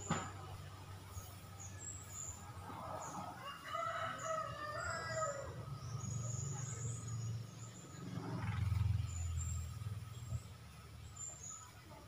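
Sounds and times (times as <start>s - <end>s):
rooster crowing: 3.2s - 5.6s.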